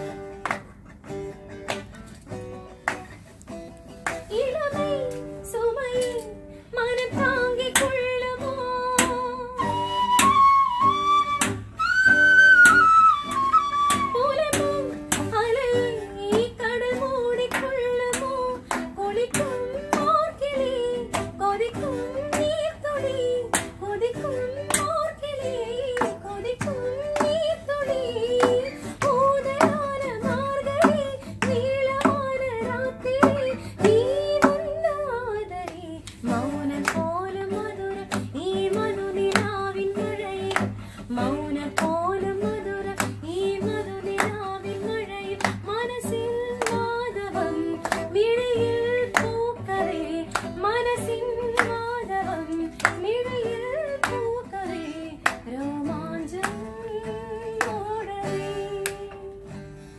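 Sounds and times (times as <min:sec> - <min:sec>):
hand claps: 0:00.0 - 0:05.3, 0:06.9 - 0:08.2, 0:08.9 - 0:59.5
strummed acoustic guitar: 0:00.0 - 0:59.9
woman singing: 0:04.2 - 0:59.9.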